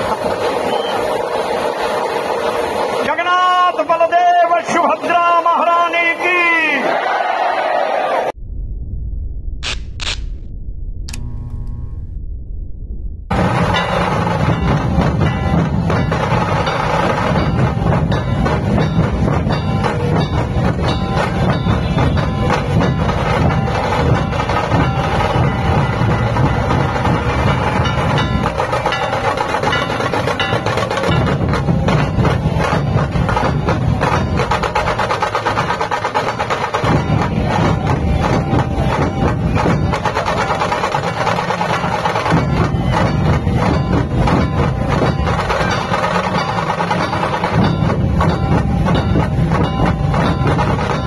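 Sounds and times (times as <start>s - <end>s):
dhol drums beaten with sticks: 13.3s - 51.0s.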